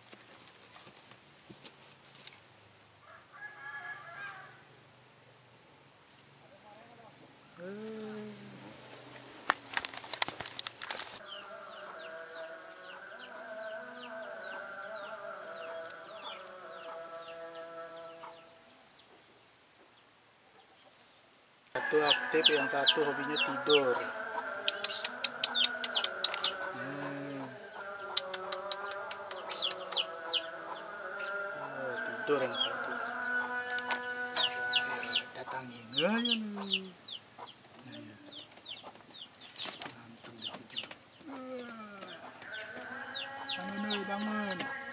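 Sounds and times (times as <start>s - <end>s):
camera handling rustling: 9.4s - 11.2s
bird chirps: 10.9s - 21.2s, 21.8s - 44.9s.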